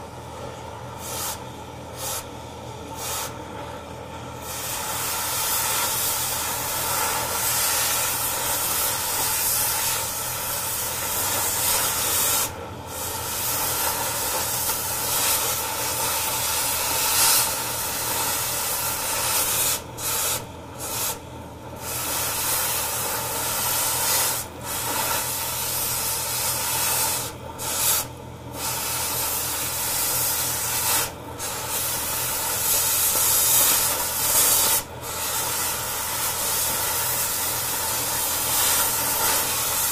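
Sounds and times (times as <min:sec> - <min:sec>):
cutting torch hissing: 0:00.9 - 0:03.5, 0:04.3 - 0:39.9.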